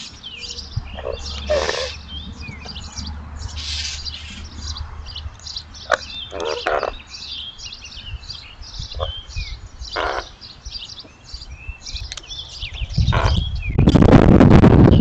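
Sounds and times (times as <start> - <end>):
raven calling: 0.0 - 2.1, 5.8 - 7.2, 8.8 - 10.5, 13.0 - 13.6
songbirds chirping: 0.0 - 15.0.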